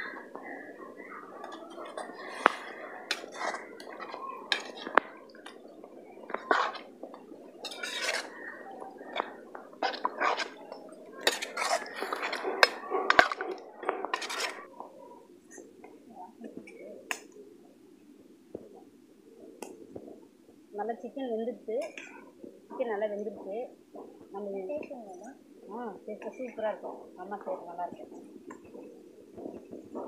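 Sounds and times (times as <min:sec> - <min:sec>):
metal spatula scraping a metal pan: 0:03.1 - 0:05.0, 0:06.3 - 0:06.9, 0:07.6 - 0:08.4, 0:09.0 - 0:10.6, 0:11.2 - 0:13.5, 0:14.1 - 0:14.7.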